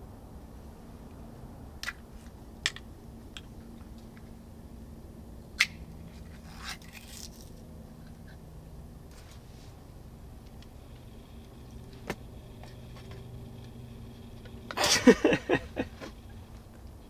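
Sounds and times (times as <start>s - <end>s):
scraping rustle: 6.1s - 8.4s, 9.1s - 9.9s.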